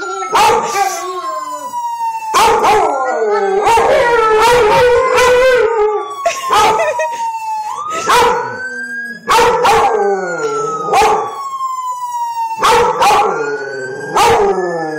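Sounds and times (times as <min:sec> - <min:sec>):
dog howling and barking: 0:00.0 - 0:00.8, 0:02.3 - 0:06.9, 0:08.0 - 0:08.6, 0:09.2 - 0:11.3, 0:12.6 - 0:14.9
siren wailing: 0:00.0 - 0:14.9.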